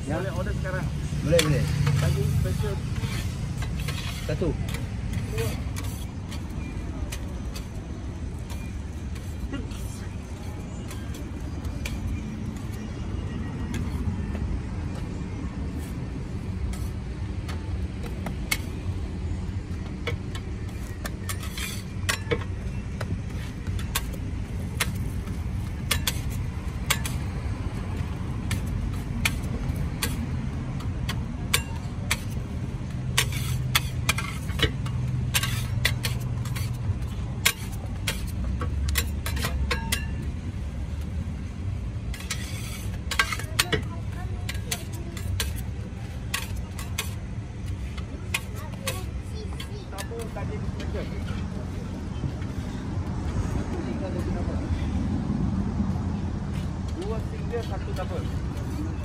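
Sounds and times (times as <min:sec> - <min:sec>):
road traffic rumble: 0:00.0 - 0:59.0
metal spatula scraping griddle: 0:00.4 - 0:07.7, 0:20.2 - 0:22.6, 0:25.8 - 0:27.3, 0:28.0 - 0:40.2, 0:42.0 - 0:50.3.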